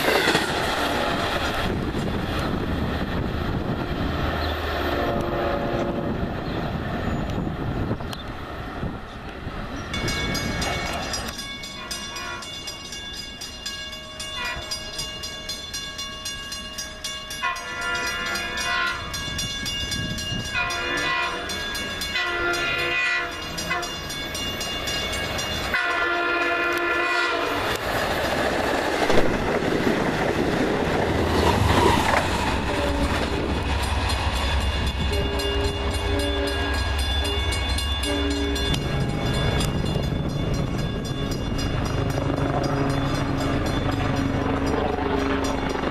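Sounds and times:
diesel locomotive rumbling past: 0.0s - 45.9s
train air horn blasts: 4.8s - 6.2s, 11.8s - 12.6s, 14.4s - 14.8s, 17.4s - 19.2s, 20.5s - 24.0s, 25.7s - 27.7s, 32.6s - 33.2s, 35.1s - 36.8s, 38.0s - 38.8s
crossing bells ringing: 9.8s - 27.8s, 32.4s - 45.9s.

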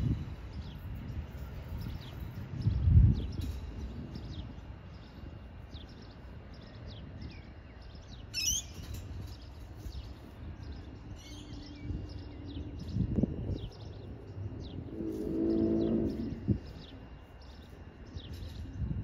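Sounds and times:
low outdoor rumble: 0.0s - 19.0s
small birds chirping: 0.0s - 19.0s
shrill bird call: 8.2s - 9.1s.

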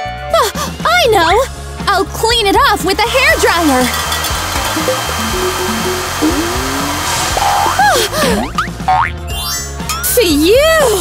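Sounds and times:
background music: 0.0s - 11.0s
cartoon sliding pitch glides: 4.8s - 8.1s.

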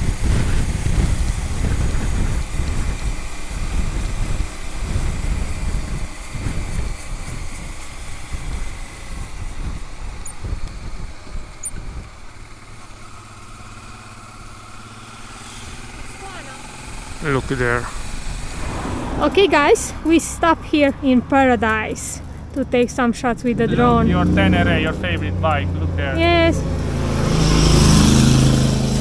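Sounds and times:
wind noise on microphone: 0.0s - 12.6s, 16.8s - 22.5s
motorcycle engine running: 0.0s - 29.0s.

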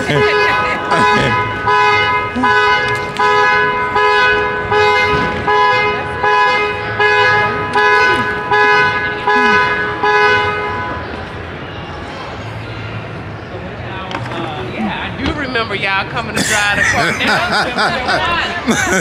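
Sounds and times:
two-tone car horn honking: 0.0s - 11.1s.

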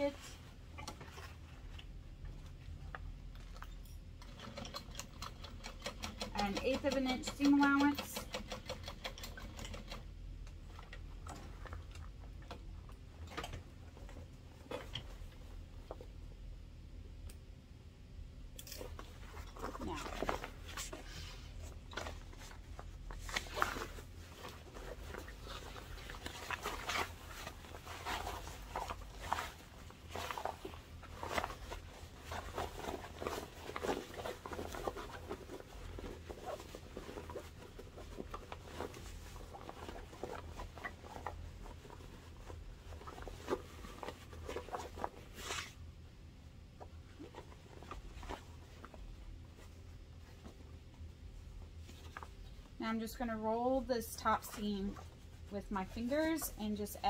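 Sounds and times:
fabric bag rustling: 19.0s - 45.8s.

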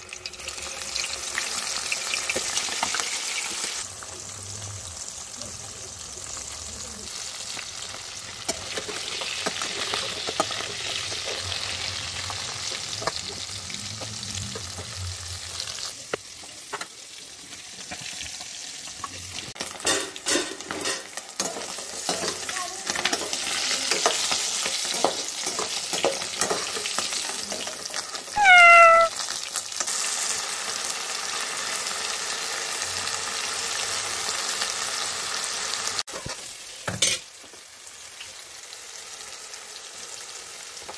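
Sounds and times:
fish sizzling in hot oil: 0.0s - 28.4s, 29.0s - 40.9s
potatoes and onions sizzling: 0.0s - 40.9s
short high cry: 28.4s - 29.1s.

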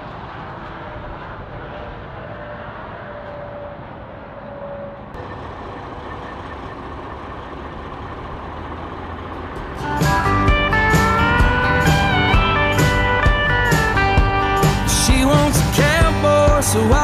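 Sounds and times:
heavy truck traffic rumble: 0.0s - 17.0s.

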